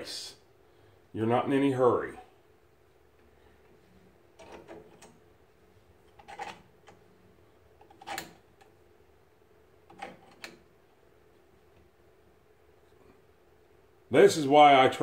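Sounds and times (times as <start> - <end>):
clamp screw clicks and knocks: 4.4 - 5.2, 6.1 - 7.0, 7.8 - 8.7, 9.9 - 10.7.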